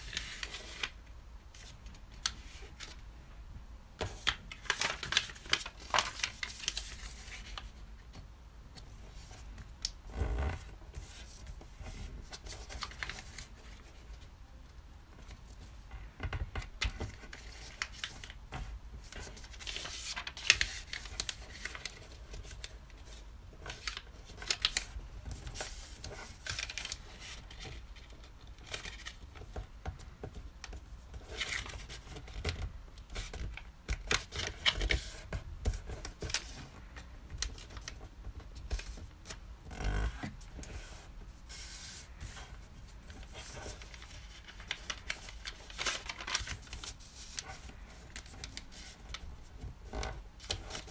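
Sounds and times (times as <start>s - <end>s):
paper being folded and creased: 0.0s - 3.0s, 4.0s - 8.1s, 9.1s - 14.2s, 16.4s - 29.7s, 30.6s - 50.9s
paper crinkling rustles: 4.0s - 8.2s, 16.6s - 50.9s.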